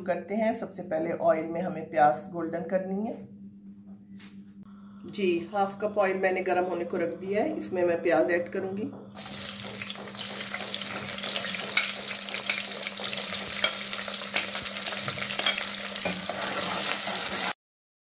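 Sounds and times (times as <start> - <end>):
steady low hum: 0.0 - 16.5
onions sizzling in hot oil: 9.2 - 17.6
spoon stirring in pot: 9.3 - 17.5.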